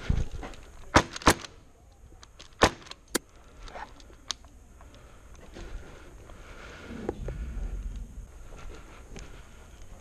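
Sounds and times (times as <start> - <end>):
airsoft gun shots: 0.9 - 1.6, 2.6 - 2.9.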